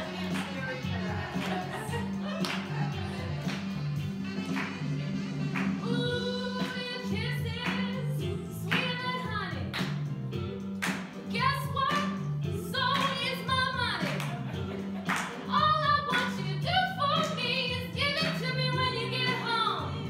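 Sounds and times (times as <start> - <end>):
instrumental accompaniment: 0.0 - 20.0
woman singing with vibrato: 5.8 - 9.7, 15.5 - 20.0.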